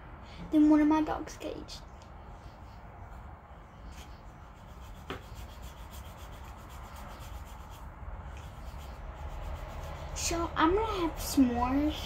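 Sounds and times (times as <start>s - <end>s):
faint scratches near microphone: 3.8s - 11.2s.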